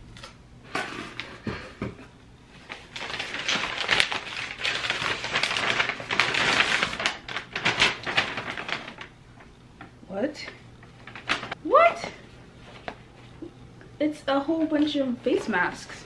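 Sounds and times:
paper tearing and crumpling: 0:02.7 - 0:09.1.

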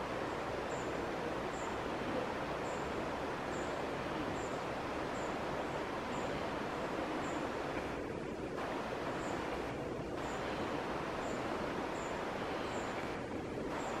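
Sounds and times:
outdoor background noise: 0:00.0 - 0:14.0
faint high chirp: 0:10.2 - 0:13.1.

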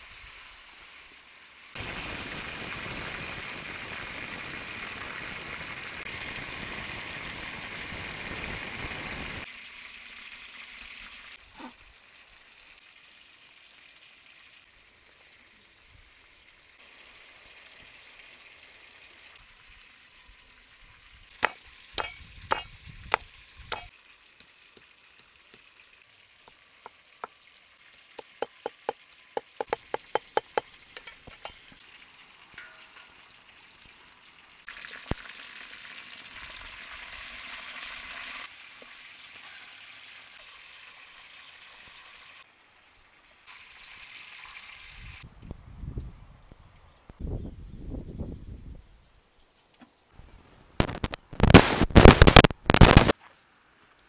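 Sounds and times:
meat sizzling in hot oil: 0:00.0 - 0:15.0, 0:16.7 - 0:42.5, 0:43.5 - 0:45.2.

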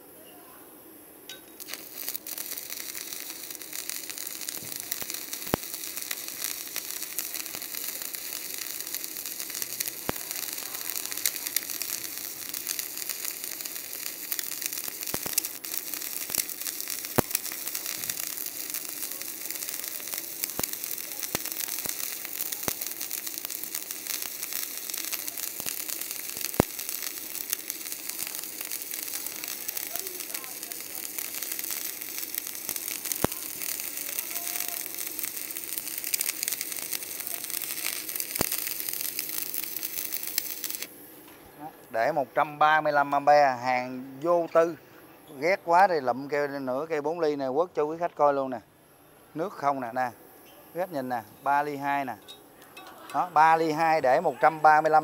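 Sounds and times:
welding arc crackling sizzle: 0:00.8 - 0:48.6, 0:49.3 - 0:55.0
sharp pops: 0:01.3 - 0:41.9.

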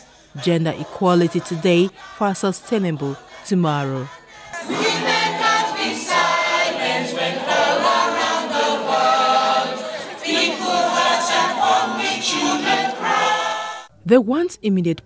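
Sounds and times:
women singing in unison: 0:00.0 - 0:13.9.

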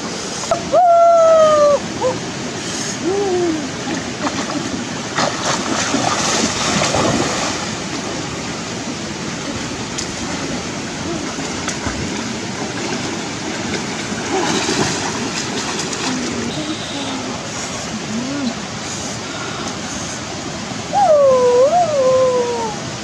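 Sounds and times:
river water rushing: 0:00.0 - 0:23.0
splashing of person swimming: 0:04.2 - 0:07.8, 0:10.1 - 0:16.6.

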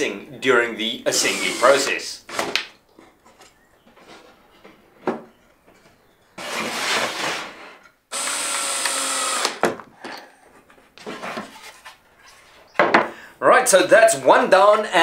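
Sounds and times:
cordless drill driving a screw: 0:01.2 - 0:01.9, 0:08.1 - 0:09.6
wooden frame scraping on bench: 0:06.4 - 0:07.8, 0:10.7 - 0:12.7.

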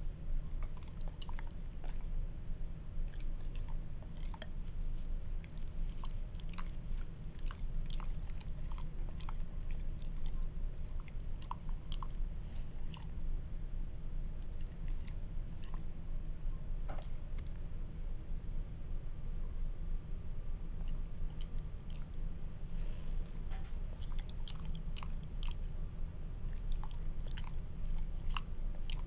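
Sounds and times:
steady low hum: 0:00.0 - 0:29.0
dog chomping wetly: 0:00.4 - 0:02.2, 0:03.0 - 0:13.2, 0:23.8 - 0:25.7, 0:26.4 - 0:29.0.

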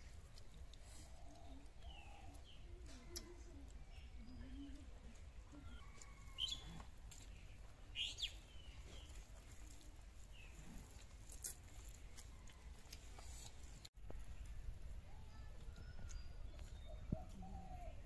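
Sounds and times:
bird chirps: 0:07.9 - 0:09.2.

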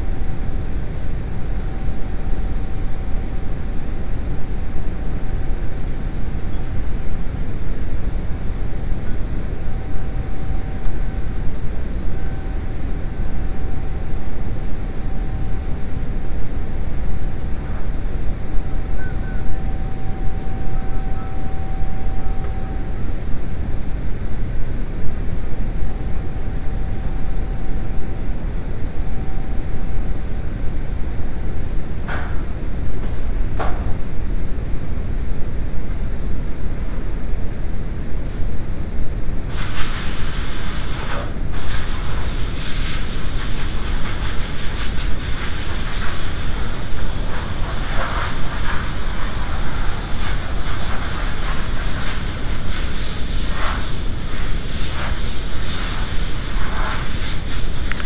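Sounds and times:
low machinery rumble: 0:00.0 - 0:39.5
faint whine: 0:00.0 - 0:44.4.

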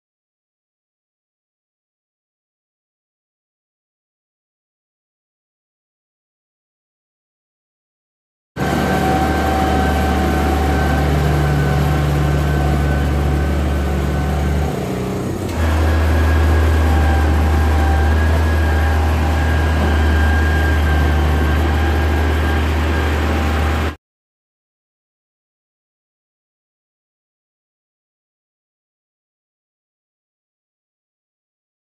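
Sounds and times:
diesel engines humming: 0:08.6 - 0:24.0
high engine whine: 0:08.6 - 0:24.0
motor grader engine drone: 0:08.6 - 0:24.0.

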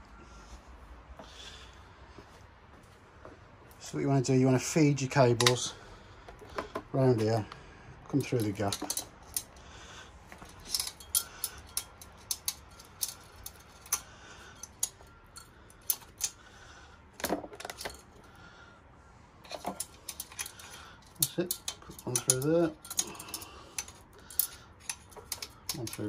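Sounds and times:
small metallic clicks and rattles: 0:08.1 - 0:09.6, 0:10.3 - 0:16.4, 0:17.2 - 0:18.3, 0:19.4 - 0:26.0.

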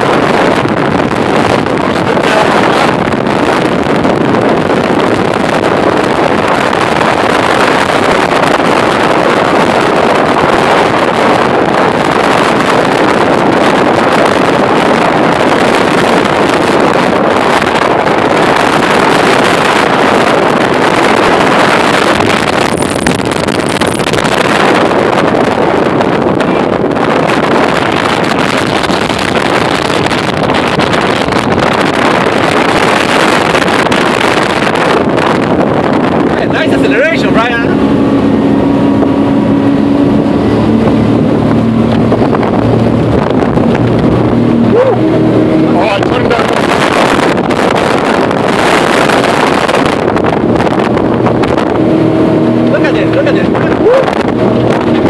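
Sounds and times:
boat engine running: 0:00.0 - 0:55.0
water rushing along hull: 0:00.0 - 0:55.0
wind rushing over microphone: 0:00.0 - 0:55.0.

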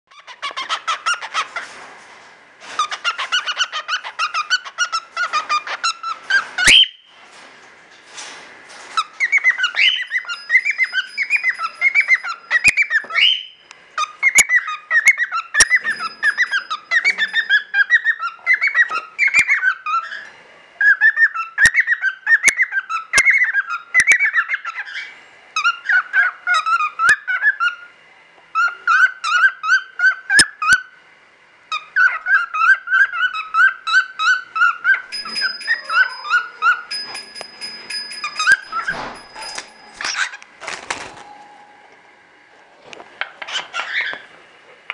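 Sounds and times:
cockatiel chirping and whistling: 0:02.8 - 0:07.1, 0:09.0 - 0:27.9, 0:31.7 - 0:37.2, 0:43.4 - 0:44.2.

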